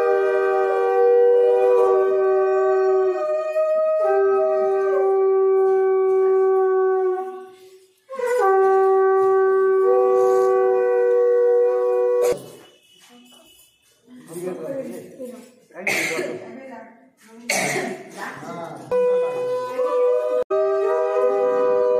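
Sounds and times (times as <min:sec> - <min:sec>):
conch shell blasts: 0:05.6 - 0:13.8.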